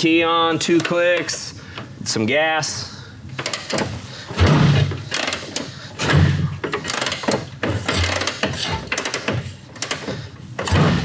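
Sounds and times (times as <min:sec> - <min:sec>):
mechanical clicks and rattles: 0:03.4 - 0:11.0.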